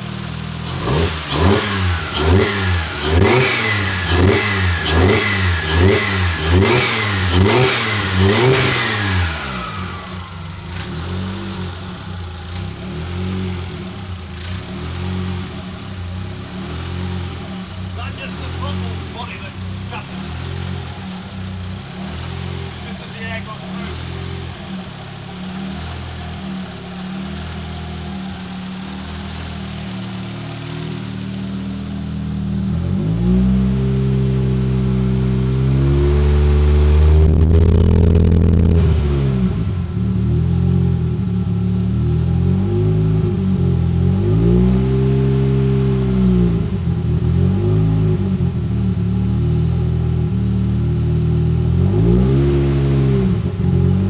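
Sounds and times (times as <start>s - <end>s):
car engine idling and revving: 0.0s - 54.0s.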